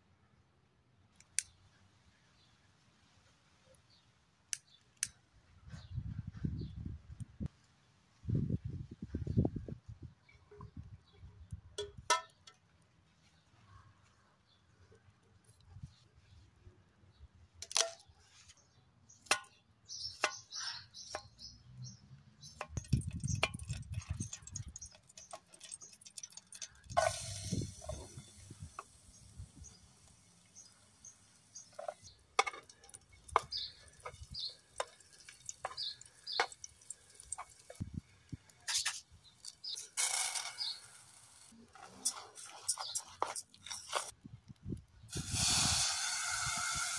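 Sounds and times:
garlic sizzling in hot oil: 22.4 - 37.8, 38.7 - 41.5, 45.1 - 46.9
spoon stirring rice: 22.5 - 29.0, 31.6 - 37.8
rice pouring into pan: 22.8 - 29.3, 40.0 - 41.0, 45.2 - 46.9.

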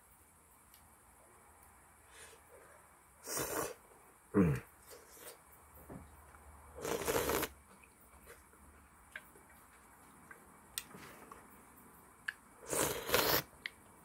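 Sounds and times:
noodles being slurped: 6.8 - 7.5, 12.6 - 13.5.

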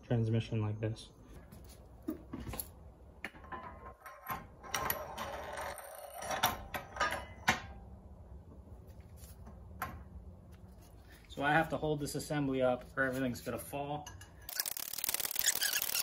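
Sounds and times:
metal parts clinking: 14.4 - 16.0.

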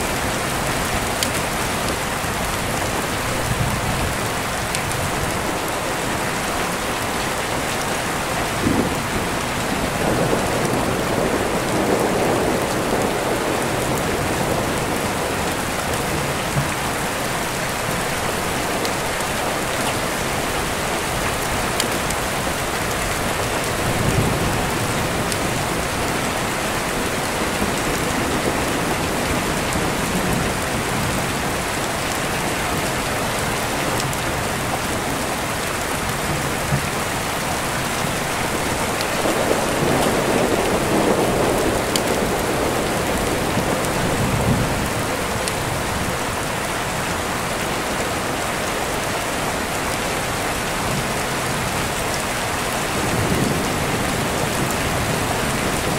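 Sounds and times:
steady rain falling: 0.0 - 55.9
rolling rumble of thunder: 8.5 - 17.1, 21.4 - 31.7, 36.2 - 46.2.

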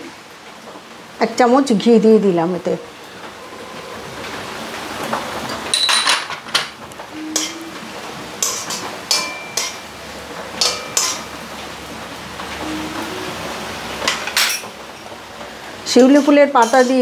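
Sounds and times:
sharp ringing clanks: 8.4 - 9.8, 10.6 - 11.3.

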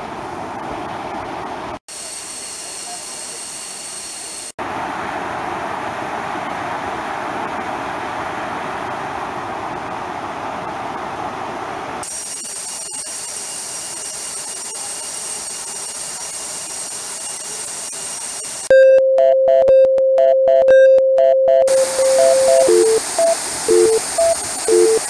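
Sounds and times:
electronic beeping tune: 18.7 - 25.0
faint high whine: 21.7 - 25.0
waterfall roaring: 21.7 - 25.0.

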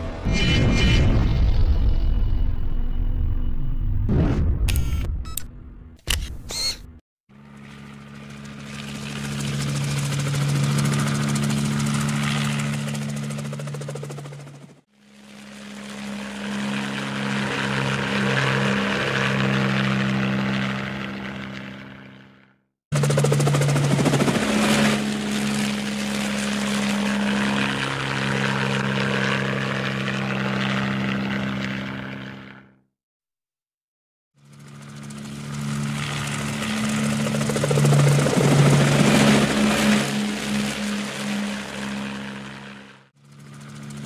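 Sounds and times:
helicopter engine and rotor: 6.1 - 32.9, 34.4 - 44.0
rotor and wind noise: 34.4 - 44.0.

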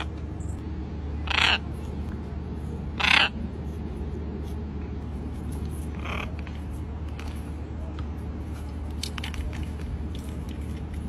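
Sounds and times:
macaw squawking: 1.2 - 1.8, 2.9 - 3.5, 5.9 - 6.6.

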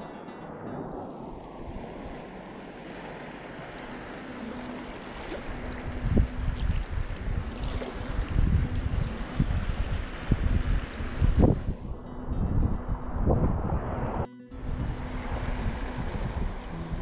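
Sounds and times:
small waves lapping: 0.0 - 12.0, 14.6 - 17.0
wind blowing across microphone: 0.0 - 17.0.

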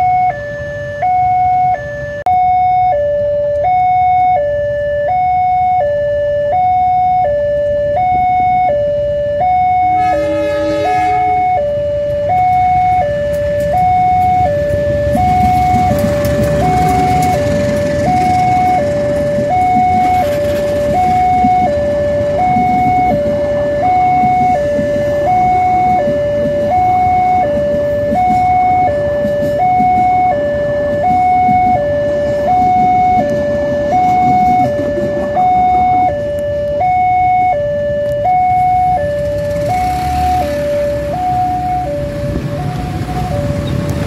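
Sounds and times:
two-tone crossing alarm: 0.0 - 44.0
train carriages rumbling past: 9.9 - 36.4, 38.5 - 44.0.

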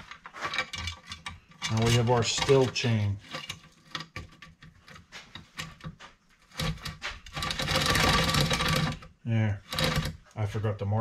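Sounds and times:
saw chain rattling over bar: 0.0 - 4.7, 6.5 - 10.2.

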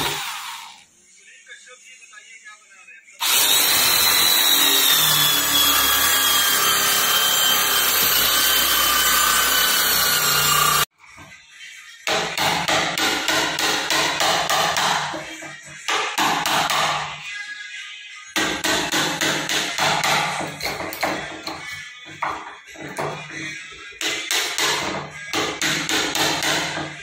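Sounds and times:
electric drill boring into wood: 0.0 - 0.8, 3.2 - 10.9
hammer driving a chisel: 18.4 - 23.4, 24.0 - 27.0.

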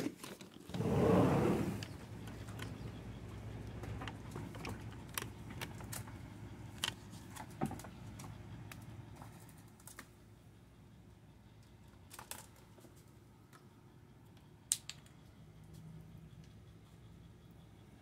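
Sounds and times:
squirrels clicking and tapping: 1.8 - 18.0.

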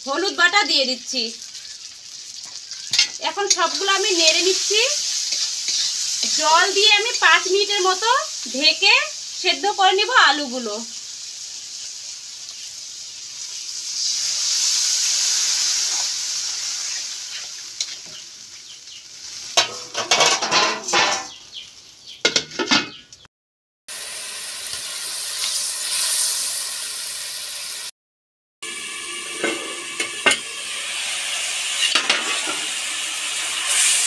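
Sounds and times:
food sizzling in a wok: 0.0 - 22.3, 23.9 - 27.9, 28.6 - 34.0
metal spatula scraping a wok: 1.4 - 7.2, 14.0 - 18.2, 19.2 - 21.4, 31.6 - 32.8.

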